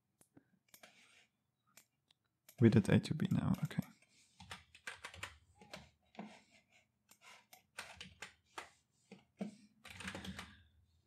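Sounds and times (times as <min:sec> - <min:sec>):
computer keyboard typing: 0:02.5 - 0:05.9, 0:07.2 - 0:08.7, 0:09.8 - 0:10.6.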